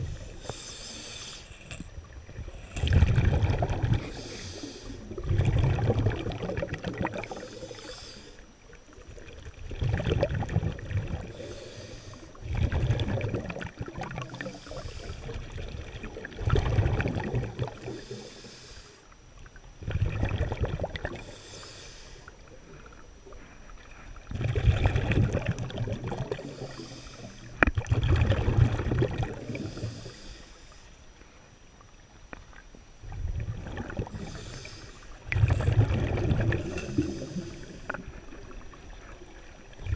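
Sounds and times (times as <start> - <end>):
exhaled bubbles rumbling: 0.0 - 0.8, 1.5 - 7.9, 8.7 - 18.2, 19.4 - 21.4, 22.4 - 30.1, 33.0 - 39.9
regulator inhale hiss: 0.0 - 3.0, 4.0 - 5.2, 7.2 - 8.7, 11.3 - 12.5, 14.2 - 15.6, 17.8 - 19.2, 21.1 - 23.7, 26.3 - 27.6, 29.4 - 31.5, 34.0 - 39.7.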